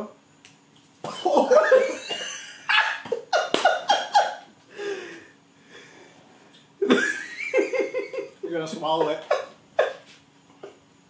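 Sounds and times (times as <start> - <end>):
man laughing: 1.1 - 5.0, 6.8 - 10.8.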